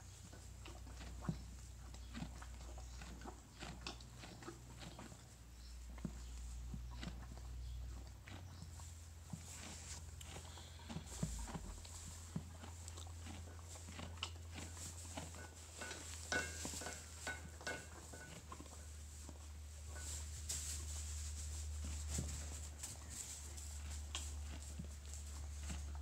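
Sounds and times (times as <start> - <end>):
hoof steps in straw: 6.0 - 26.0
rustling straw: 18.9 - 25.8.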